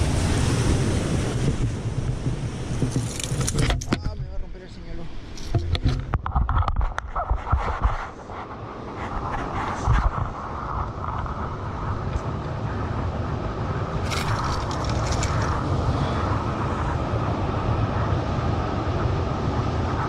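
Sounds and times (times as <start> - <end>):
wind on microphone: 0.0 - 20.0
sharp clicks and rattles: 2.8 - 4.4, 14.0 - 15.6
surf breaking on cobbles: 14.0 - 15.7.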